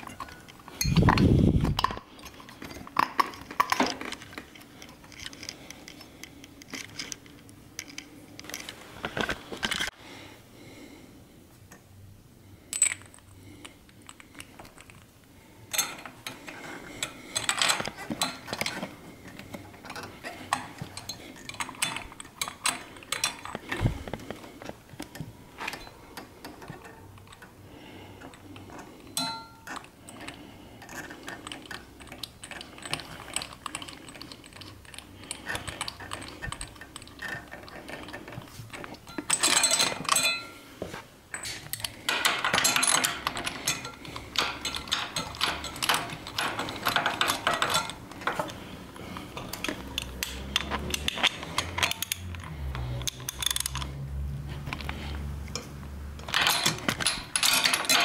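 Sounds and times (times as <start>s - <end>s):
metal clinks and scrapes of wrench: 0.0s - 8.8s, 12.7s - 15.0s, 15.7s - 24.4s, 28.2s - 40.6s, 41.3s - 54.1s, 54.7s - 58.0s.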